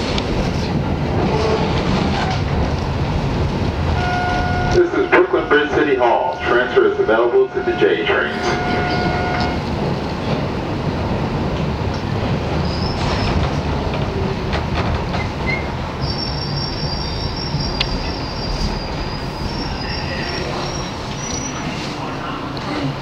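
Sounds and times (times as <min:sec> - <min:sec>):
train wheels rumbling on rail: 0:00.0 - 0:23.0
high wheel squeal: 0:06.5 - 0:09.6, 0:15.5 - 0:21.8.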